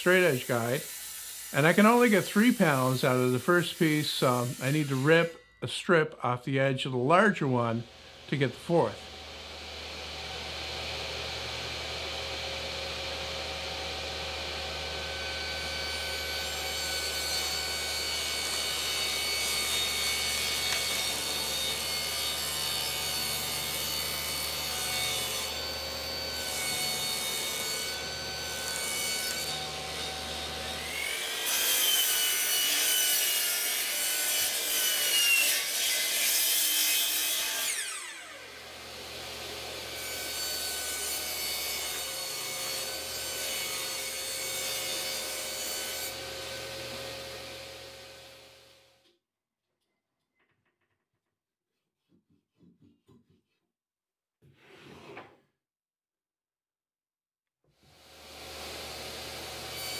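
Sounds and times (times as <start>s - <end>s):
saw ripping plywood: 0.0s - 5.3s, 16.1s - 38.5s
table saw motor hum and whine: 7.9s - 48.8s, 58.0s - 59.9s.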